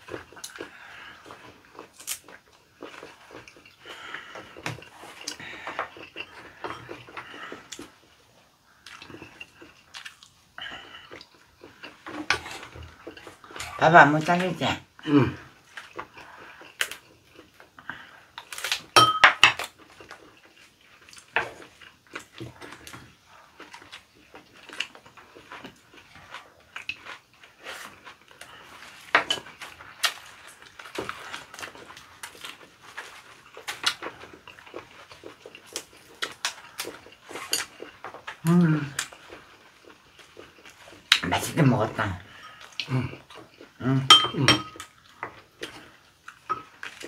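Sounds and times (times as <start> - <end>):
chewing and mouth noises: 0.0 - 47.0
dish clinking: 19.0 - 19.4, 44.1 - 44.8
spoons tapping ceramic bowls: 44.1 - 44.8.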